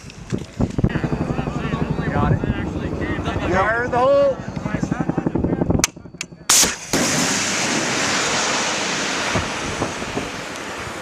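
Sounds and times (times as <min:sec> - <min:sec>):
missile launch blast: 0:06.5 - 0:11.0
rocket motor rushing hiss: 0:06.5 - 0:11.0.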